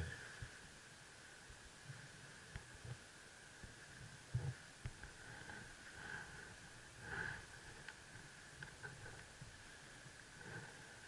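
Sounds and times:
faint hiss: 0:00.0 - 0:11.0
breathy sniff: 0:05.3 - 0:07.6.

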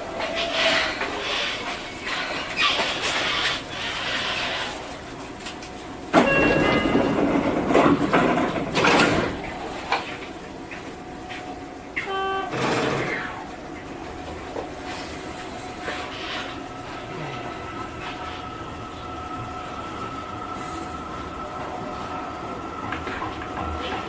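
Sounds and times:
short buzzer tone: 0:06.2 - 0:07.0, 0:12.0 - 0:12.7
brief chime: 0:06.2 - 0:07.1.

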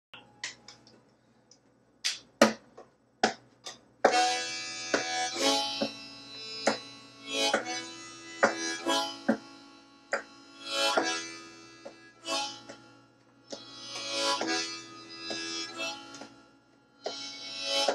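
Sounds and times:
harmonica chords: 0:04.0 - 0:17.9.

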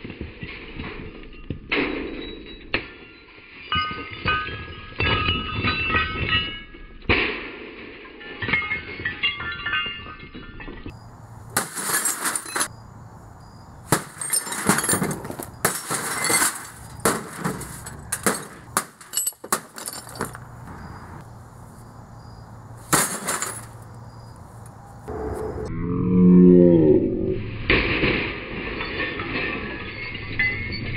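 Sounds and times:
glass shards clinking: 0:08.2 - 0:10.9, 0:11.6 - 0:12.7, 0:13.9 - 0:20.4, 0:22.9 - 0:23.8
television glass smashing: 0:08.2 - 0:10.9, 0:11.6 - 0:12.7, 0:13.9 - 0:20.4, 0:22.9 - 0:23.8.

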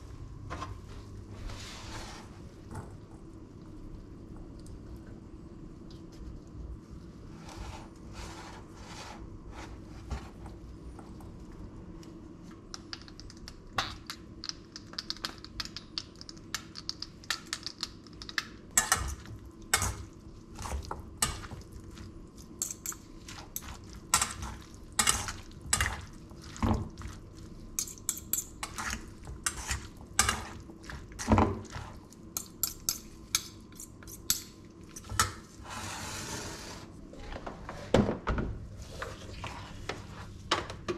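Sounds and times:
utensils clinking on bowl: 0:22.5 - 0:27.2, 0:27.8 - 0:35.4.

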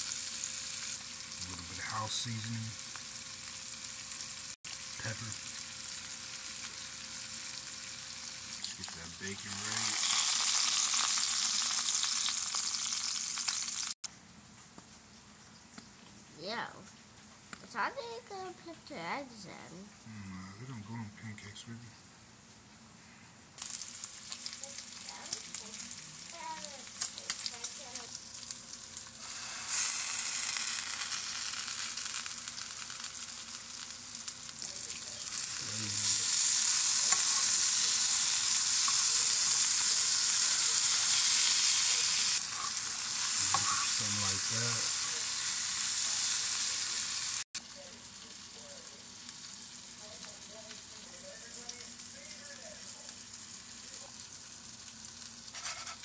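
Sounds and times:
bacon frying in a skillet: 0:00.0 - 0:14.0, 0:23.6 - 0:56.0
vegetables sizzling in a frying pan: 0:00.0 - 0:14.0, 0:23.6 - 0:56.0
utensil stirring food: 0:34.5 - 0:47.0.

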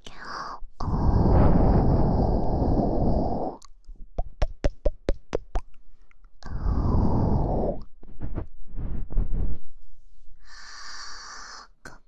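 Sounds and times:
breath blown onto microphone: 0:00.8 - 0:03.6, 0:06.4 - 0:11.7
sharp mouth pops: 0:03.6 - 0:05.8.

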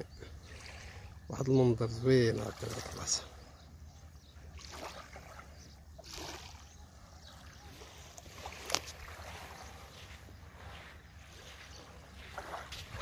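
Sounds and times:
water lapping at shore: 0:00.0 - 0:13.0
wind rumble on microphone: 0:04.2 - 0:13.0.

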